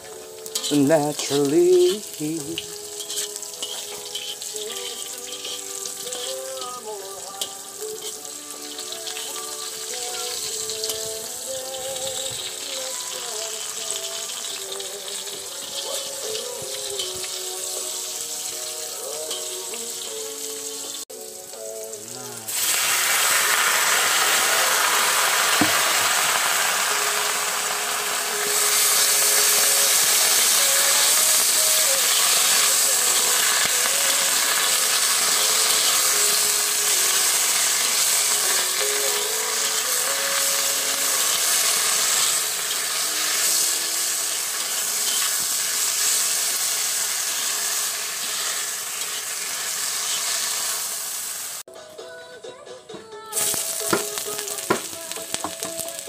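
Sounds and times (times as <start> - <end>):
greens sizzling in a wok: 0.0 - 51.7, 53.3 - 56.0
metal spatula scraping pan: 0.5 - 6.8, 44.5 - 45.6.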